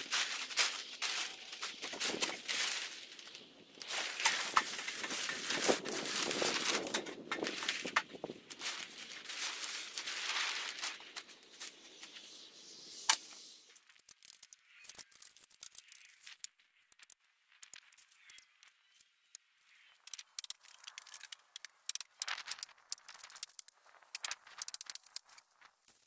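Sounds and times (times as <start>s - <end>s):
plastic wrap rustling: 0.0s - 11.8s
sharp crack: 13.0s - 13.4s.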